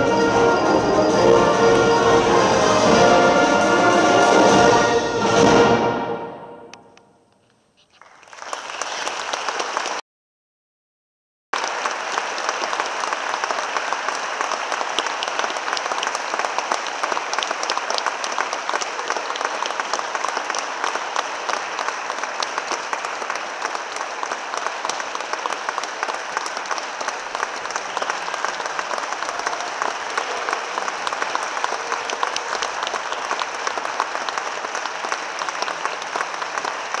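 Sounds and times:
audience clapping: 7.8 - 10.0, 11.6 - 37.0.

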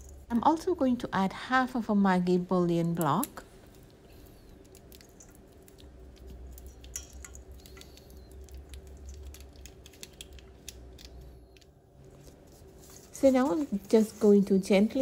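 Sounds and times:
bouillon cube crackling: 7.5 - 11.8.

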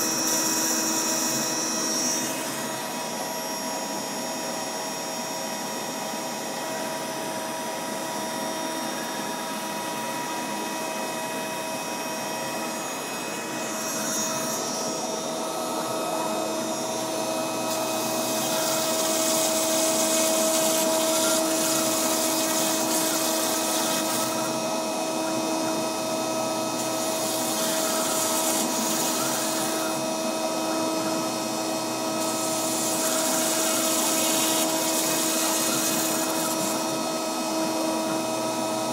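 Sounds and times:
bit cutting foam hiss: 0.0 - 4.4, 11.8 - 24.6, 26.7 - 30.1, 30.8 - 37.2
router spindle whine: 0.0 - 38.9.

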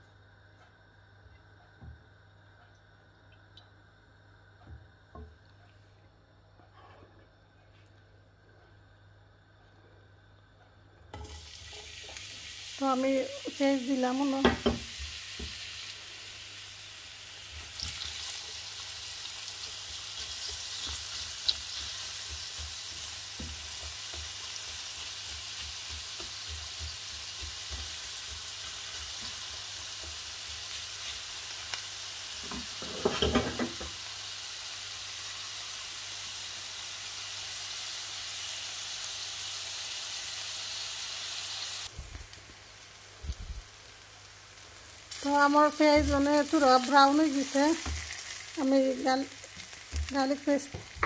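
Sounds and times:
onions sizzling in hot oil: 11.1 - 51.0.

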